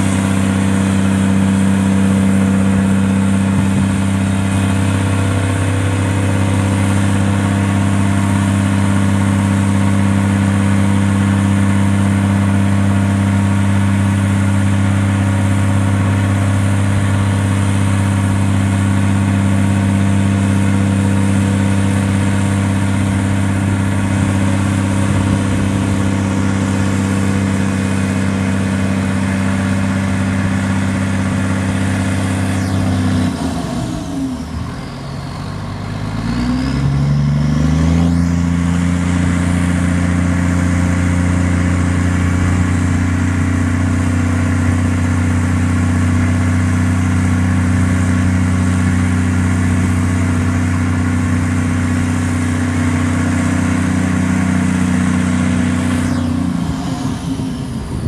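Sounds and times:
diesel truck engine idling: 0.0s - 58.0s.

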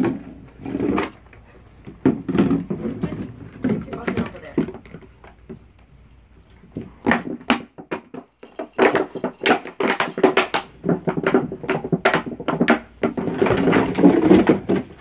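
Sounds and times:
dog chewing plastic bucket: 0.0s - 5.6s, 6.8s - 15.0s
knocks against wooden boards: 6.8s - 14.9s.

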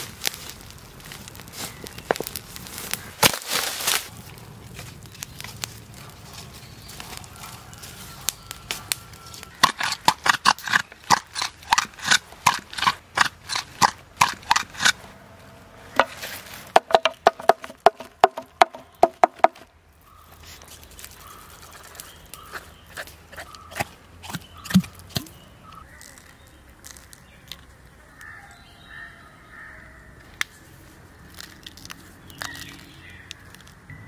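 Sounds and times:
stick pounding in bamboo tube: 9.6s - 15.0s, 16.0s - 19.7s.

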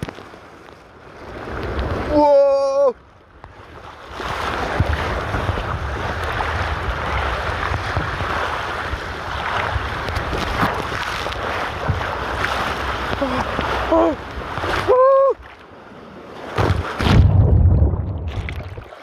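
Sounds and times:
wind buffeting microphone: 3.4s - 18.9s
water rushing and spraying: 4.1s - 19.0s.

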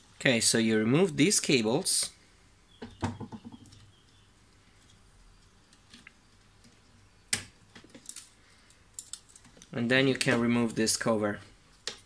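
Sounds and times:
plastic parts clicking and rattling: 5.7s - 10.4s.

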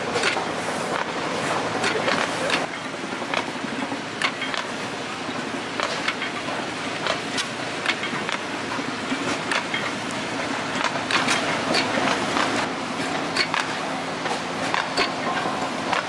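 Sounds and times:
sharp mechanical knocks: 4.2s - 4.7s, 9.4s - 10.0s, 13.3s - 16.0s.

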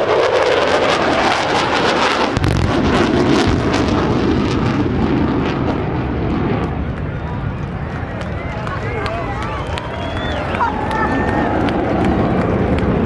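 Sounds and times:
deep explosion rumble: 0.0s - 8.6s, 11.2s - 13.0s
jet engines roaring in afterburner: 0.0s - 13.0s.

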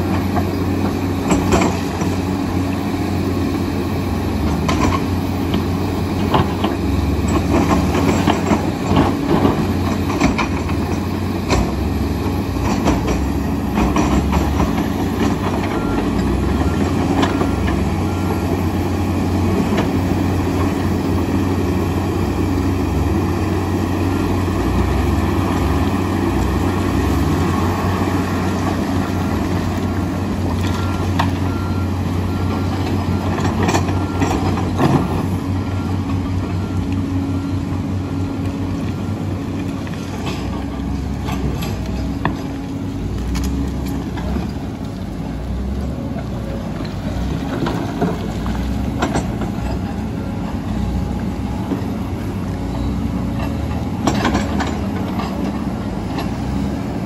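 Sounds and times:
diesel engines running: 0.0s - 57.0s
faint beep: 30.7s - 33.3s.

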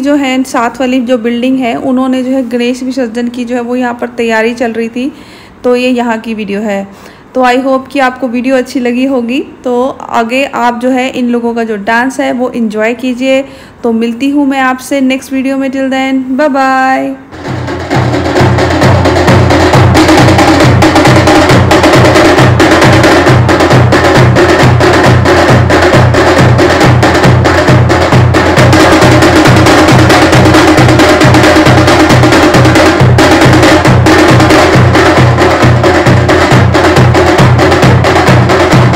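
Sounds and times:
large drums beaten with sticks: 17.3s - 38.9s.

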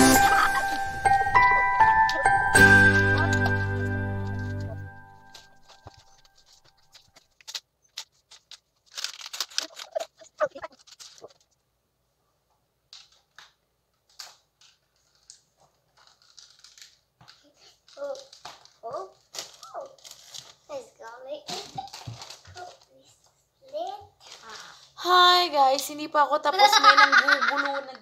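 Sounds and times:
brief rustling: 4.2s - 11.6s
plastic pieces clicking and knocking: 5.3s - 11.6s, 12.9s - 20.6s.

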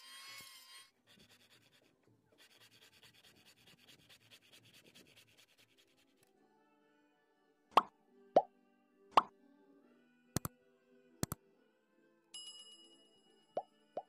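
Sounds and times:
handsaw cutting wood: 0.0s - 1.8s.

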